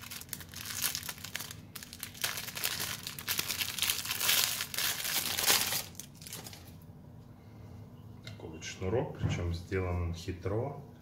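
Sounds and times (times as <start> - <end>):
plastic wrapping crinkling: 0.0 - 6.8.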